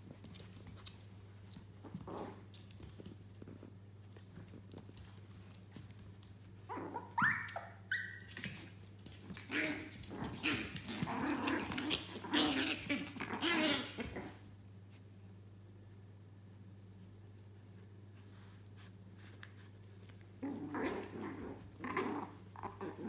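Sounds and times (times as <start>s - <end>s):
puppies yipping: 6.7s - 8.4s
puppies barking and yapping: 6.7s - 8.7s.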